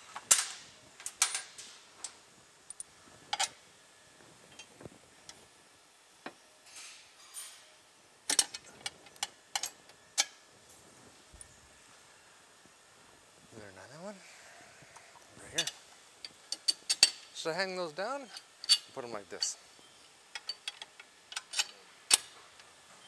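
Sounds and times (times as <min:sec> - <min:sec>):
soft rustles: 0:10.6 - 0:13.6.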